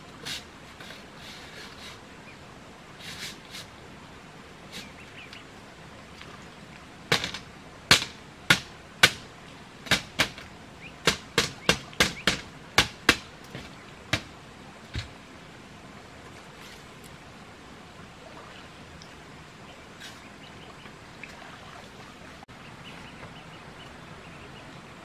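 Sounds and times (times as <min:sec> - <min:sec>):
sharp knocks on bamboo: 0:07.1 - 0:09.2, 0:09.8 - 0:14.3, 0:14.9 - 0:15.2.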